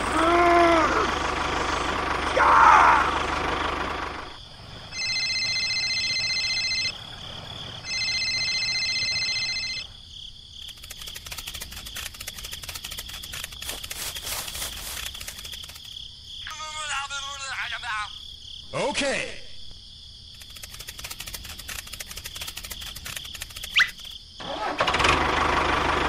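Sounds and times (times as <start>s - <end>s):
small tractor engine: 0.0s - 9.9s, 10.7s - 16.0s, 20.4s - 26.0s
crickets chirping: 0.0s - 24.7s
high ringing tones: 4.9s - 7.0s, 7.8s - 9.9s.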